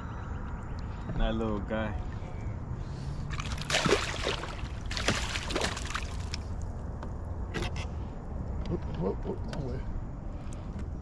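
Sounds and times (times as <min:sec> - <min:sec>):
fish splashing in water: 0:03.3 - 0:06.5.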